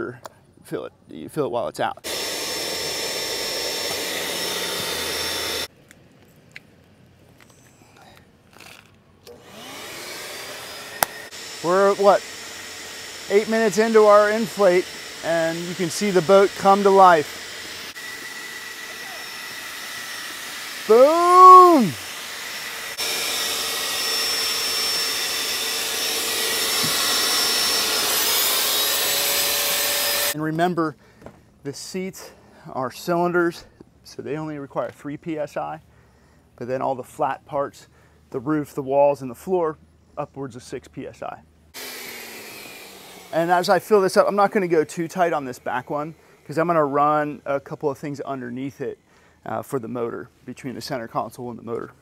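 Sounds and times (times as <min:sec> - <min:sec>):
electric inflation pump running: 0:02.0 - 0:05.7, 0:09.3 - 0:30.4, 0:41.8 - 0:47.0.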